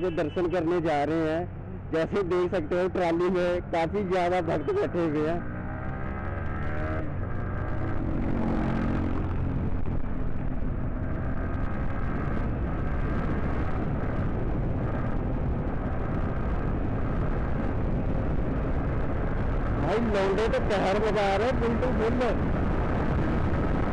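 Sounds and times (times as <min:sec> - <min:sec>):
motorcycle engine running: 0:04.1 - 0:23.9
wind noise on microphone: 0:05.0 - 0:23.9.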